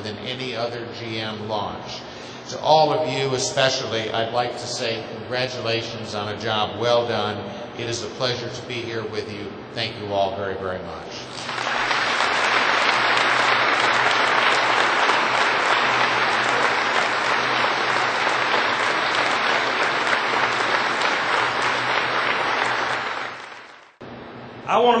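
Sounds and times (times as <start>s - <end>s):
large audience applauding: 11.3s - 24.0s.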